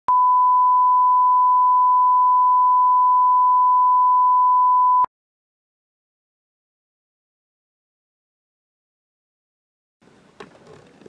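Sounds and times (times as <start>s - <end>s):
steady pure test tone beep: 0.1s - 5.1s.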